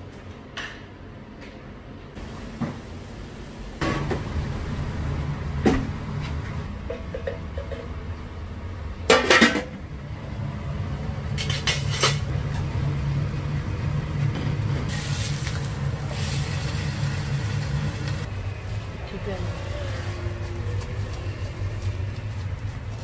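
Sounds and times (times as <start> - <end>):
steady low hum: 0.9 - 23.0
metal utensils and pans clattering: 9.1 - 9.8, 11.4 - 12.3.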